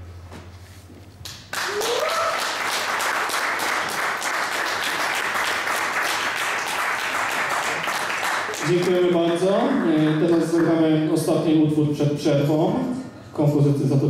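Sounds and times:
audience applauding: 0:01.4 - 0:11.1
crowd whooping: 0:01.6 - 0:02.8.

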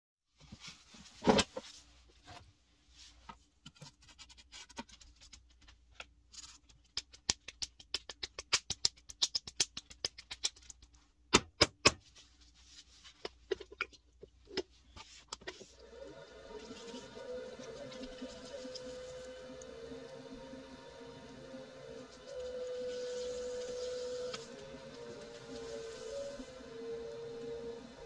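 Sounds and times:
hands patting wet clay: 0:06.7 - 0:11.0
pottery wheel hum: 0:15.6 - 0:28.0.

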